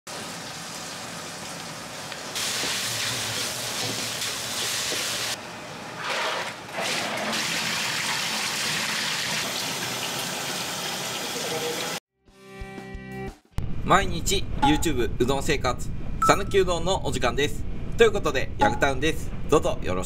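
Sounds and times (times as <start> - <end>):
water boiling in a pot: 0.1 - 5.4
tap water gushing into bucket: 6.1 - 12.0.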